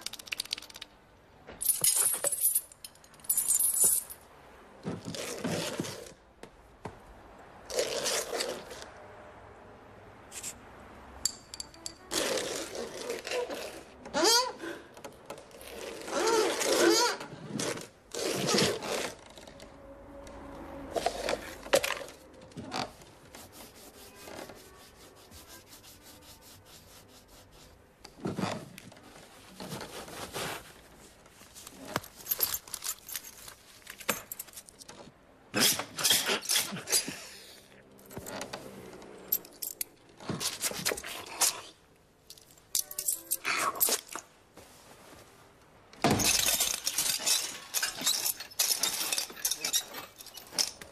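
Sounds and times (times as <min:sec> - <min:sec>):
small objects scraping and jangling: 0:01.6 - 0:04.3, 0:20.4 - 0:25.2, 0:29.5 - 0:35.1, 0:36.0 - 0:44.3, 0:46.1 - 0:50.9.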